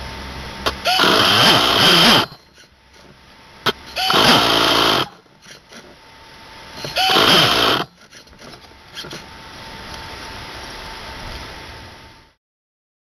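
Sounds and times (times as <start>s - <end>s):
electric starter cranking engine: 0.6s - 6.0s, 6.7s - 9.3s.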